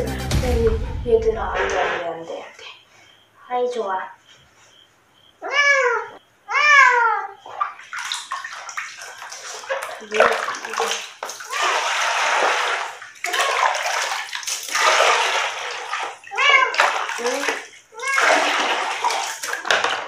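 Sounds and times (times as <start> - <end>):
cat meowing: 5.4 - 7.4, 16.3 - 18.5
water splashing in a basin: 7.4 - 20.0.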